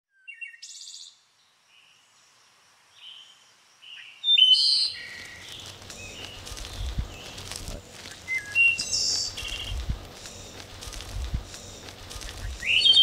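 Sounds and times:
faint outdoor ambience hiss: 0.1 - 13.0
forest birds calling: 0.1 - 13.0.

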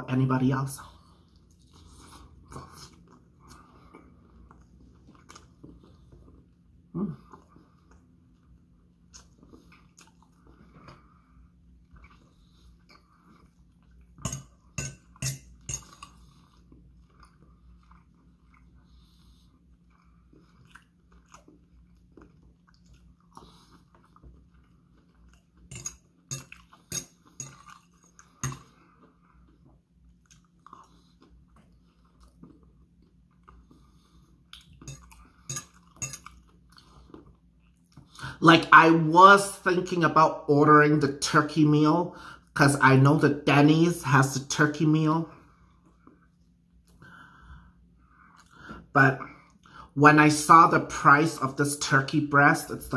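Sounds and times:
person chewing food: 0.8 - 38.4, 45.4 - 49.9.

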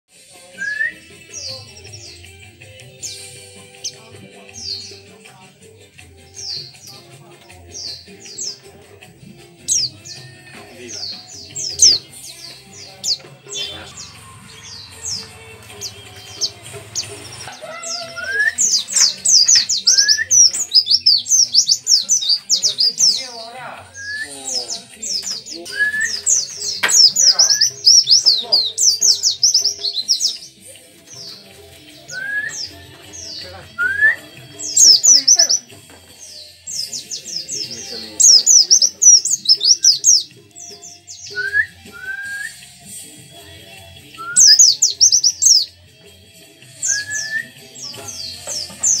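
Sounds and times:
rising bird whistle: 0.6 - 1.1, 17.9 - 18.9, 24.0 - 24.3, 32.1 - 32.8, 33.8 - 35.0, 41.3 - 42.6
bird singing rapid high chirps: 0.6 - 42.8, 44.0 - 45.8, 46.8 - 49.0.

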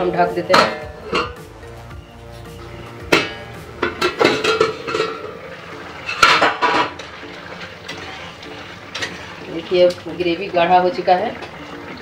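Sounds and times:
steel lid clanking on a pot: 0.5 - 1.4, 3.1 - 5.4, 6.0 - 7.1.

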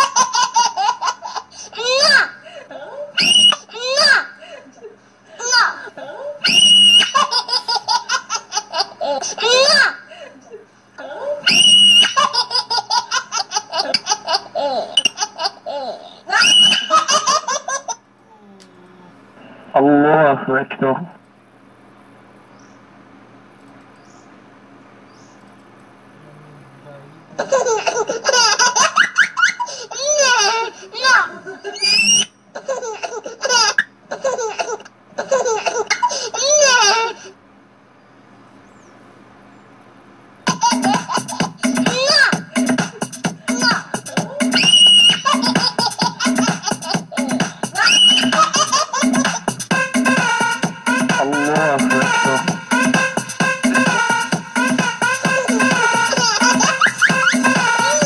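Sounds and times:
high-pitched laughing: 0.0 - 18.0, 27.4 - 37.3, 40.5 - 58.0.

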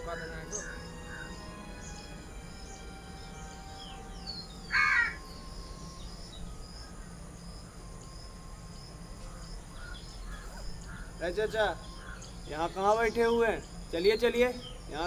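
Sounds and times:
small birds chirping: 0.0 - 15.0
crow cawing: 0.1 - 1.4, 4.7 - 5.3, 9.3 - 11.2, 12.0 - 12.3.

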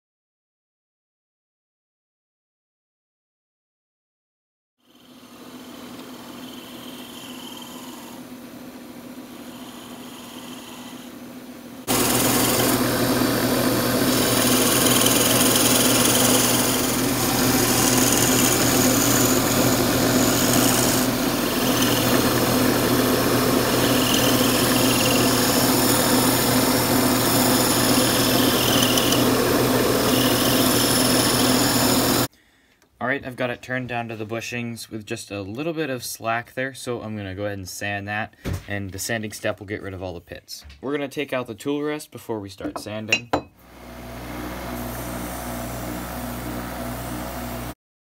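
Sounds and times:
tool scraping spinning wood: 4.9 - 8.3, 9.2 - 32.3
lathe motor hum: 4.9 - 32.3.

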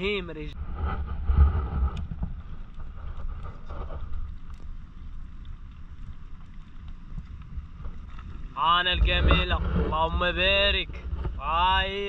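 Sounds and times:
sea wash: 0.0 - 12.0
wind buffeting microphone: 0.0 - 12.0.

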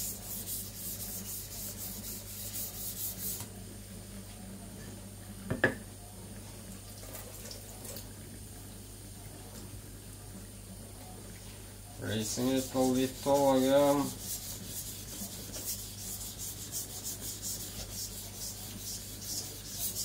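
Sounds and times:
knife scraping on whetstone: 12.4 - 20.0.

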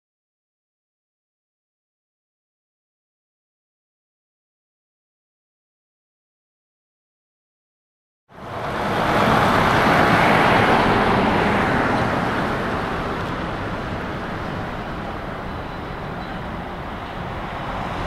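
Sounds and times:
heavy truck driving past: 8.3 - 18.0.

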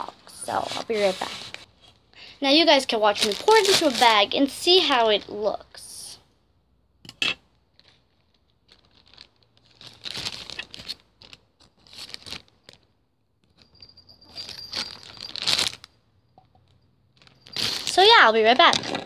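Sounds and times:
plastic bag crinkling: 2.8 - 5.0, 7.7 - 12.9, 14.4 - 15.9, 17.1 - 19.0.

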